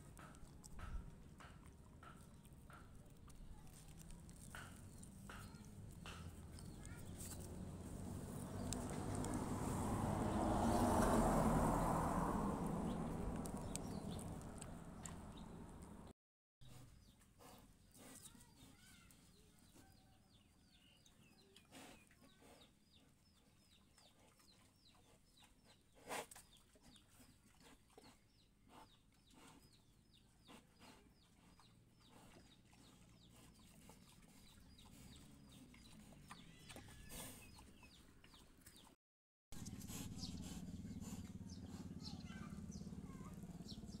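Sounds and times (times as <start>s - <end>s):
bird chirping: 12.8s - 16.0s.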